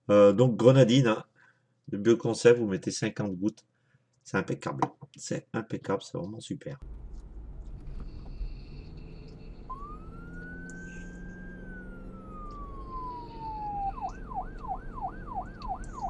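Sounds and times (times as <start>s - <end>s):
low steady hum: 6.8s - 16.0s
emergency vehicle siren: 7.2s - 16.0s.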